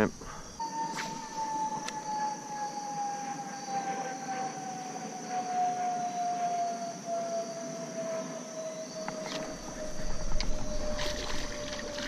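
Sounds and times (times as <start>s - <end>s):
insects chorus: 0.0s - 12.0s
distant siren falling in pitch: 0.6s - 12.0s.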